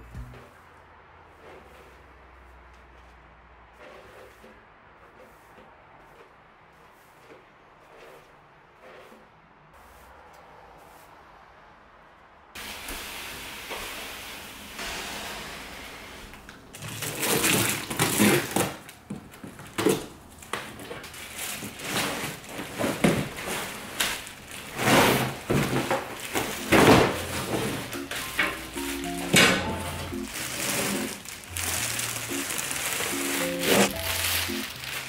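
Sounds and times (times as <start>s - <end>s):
cardboard and plastic rustling and scraping: 2.8s - 9.3s, 16.7s - 35.0s
steady hiss: 12.6s - 16.5s.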